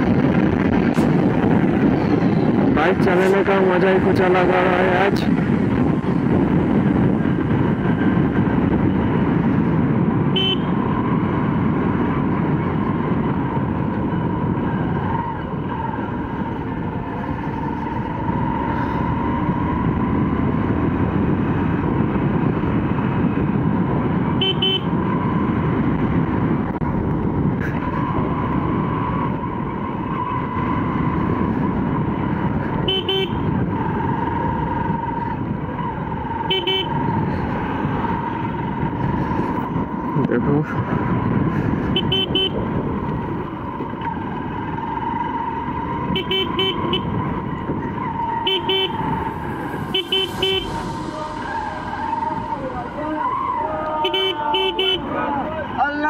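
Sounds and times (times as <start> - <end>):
motorcycle horn toots: 10.3 - 10.8, 24.4 - 25.0, 32.8 - 33.5, 36.5 - 37.0, 41.9 - 42.6, 46.1 - 47.1, 48.4 - 49.1, 49.9 - 50.7, 54.0 - 55.1
rush of air: 48.9 - 54.1.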